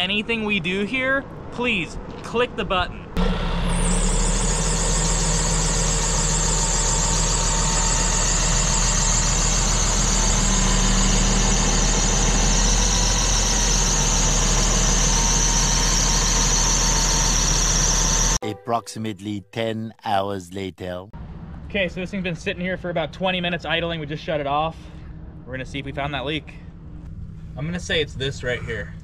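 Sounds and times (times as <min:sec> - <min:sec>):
high-pitched whine: 0:03.2 - 0:18.4.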